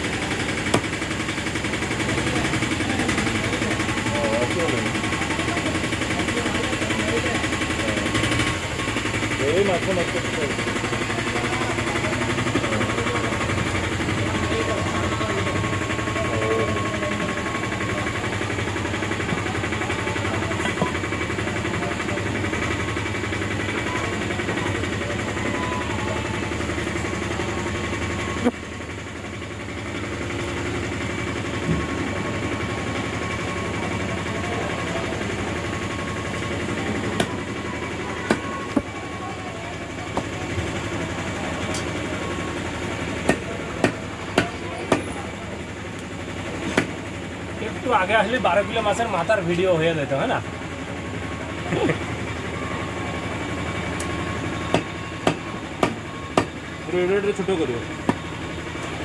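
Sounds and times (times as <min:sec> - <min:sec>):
engine-like hum: 0:00.0 - 0:59.0.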